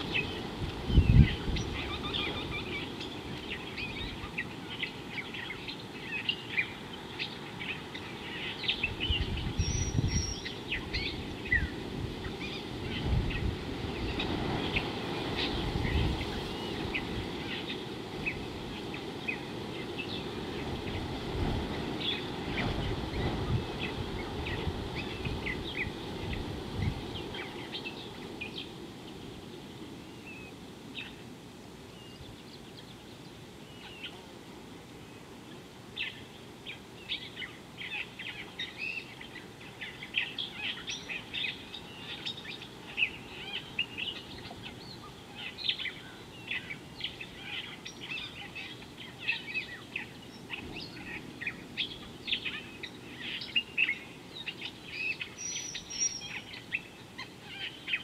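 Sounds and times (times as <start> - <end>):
wind rumbling on microphone: 0.0 - 5.5, 8.0 - 30.5
birds chirping: 0.0 - 31.3, 31.9 - 34.4, 35.0 - 58.0.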